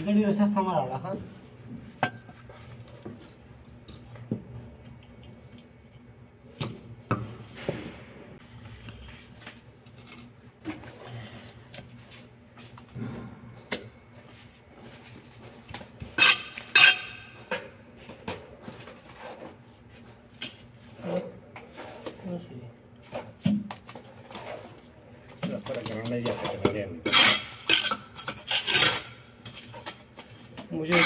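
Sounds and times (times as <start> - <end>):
trowels scraping and tapping bricks: 25.4 - 31.0.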